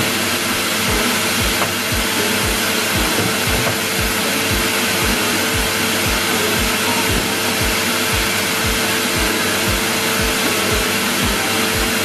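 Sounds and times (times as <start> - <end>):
vacuum cleaner running: 0.0 - 12.0.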